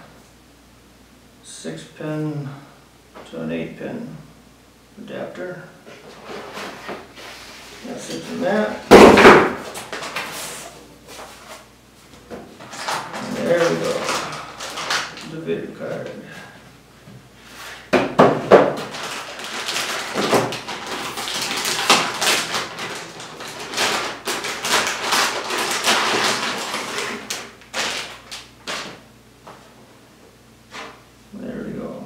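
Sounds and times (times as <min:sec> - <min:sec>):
plastic bag crinkling: 0:07.8 - 0:11.6, 0:12.6 - 0:15.4, 0:18.5 - 0:29.0.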